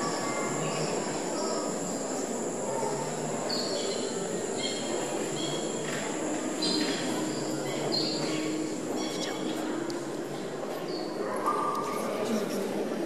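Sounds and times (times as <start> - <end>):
low murmuring hiss: 0.0 - 13.0.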